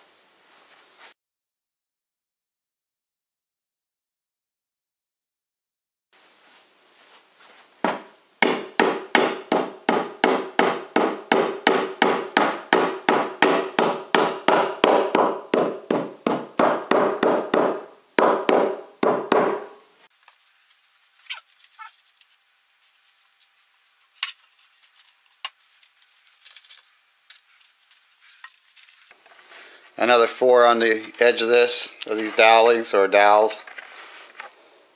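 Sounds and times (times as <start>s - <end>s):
rubber mallet tapping wood panel: 7.8s - 19.7s.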